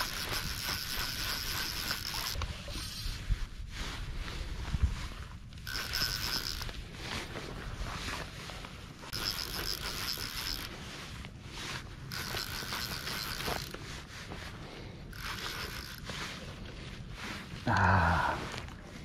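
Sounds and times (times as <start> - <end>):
fly reel drag ratcheting: 0.0 - 3.2, 5.5 - 7.3, 9.0 - 10.9, 11.6 - 14.1, 15.0 - 16.8
low rumble of wind and water: 0.0 - 19.0.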